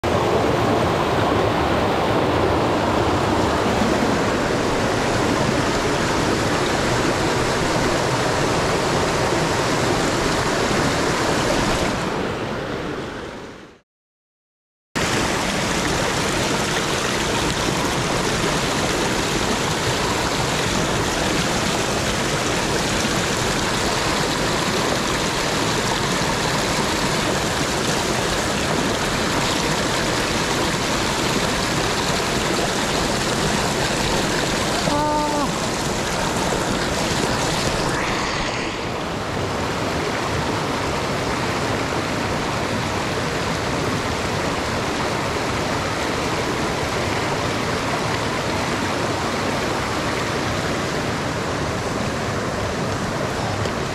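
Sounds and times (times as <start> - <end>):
river water rushing: 0.0 - 13.8, 15.0 - 53.9.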